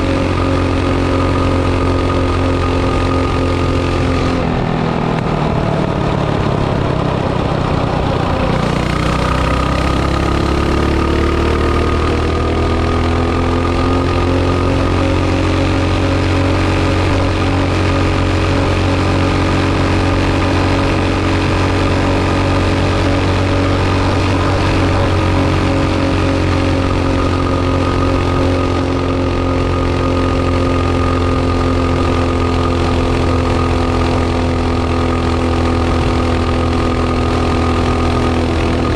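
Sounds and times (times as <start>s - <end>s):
small engine revving: 0.0s - 38.9s.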